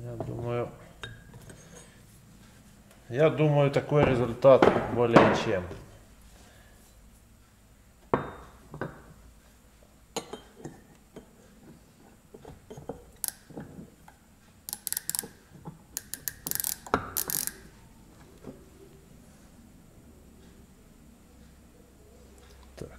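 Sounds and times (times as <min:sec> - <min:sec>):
micrometer ratchet clicking: 0:13.2 - 0:13.5, 0:14.7 - 0:15.4, 0:16.0 - 0:17.8.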